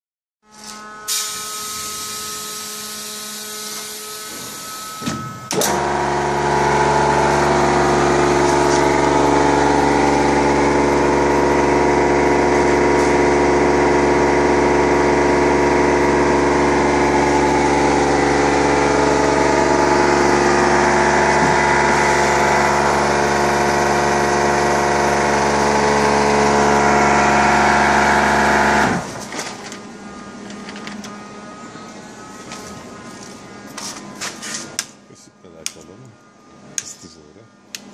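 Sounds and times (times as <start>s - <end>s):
vacuum pump humming: 5.5s - 29.2s.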